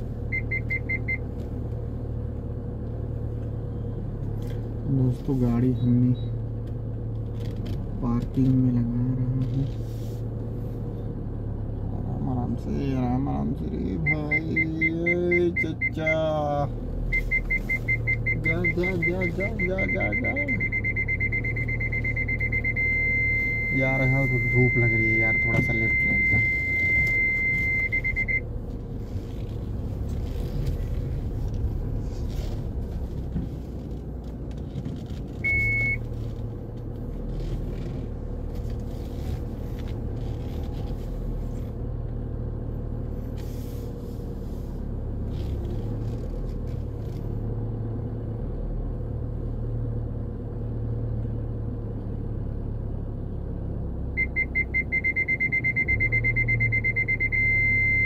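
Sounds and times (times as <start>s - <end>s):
car engine idling: 0.0s - 58.0s
parking sensor beeps: 0.3s - 1.3s, 14.0s - 16.4s, 17.0s - 28.5s, 35.4s - 36.1s, 54.2s - 58.0s.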